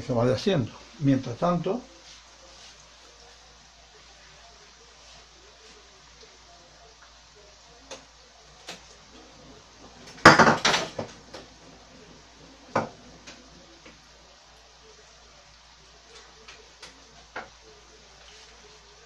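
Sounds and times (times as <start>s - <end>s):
kitchenware clinking and knocking: 10.0s - 11.5s, 12.7s - 13.0s.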